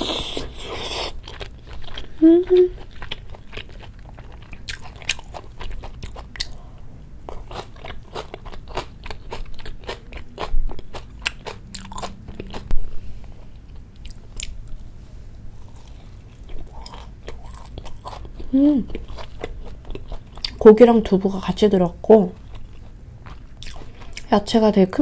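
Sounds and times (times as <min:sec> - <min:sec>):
crisp chewing crunches: 0:00.2 - 0:06.6, 0:15.6 - 0:20.6.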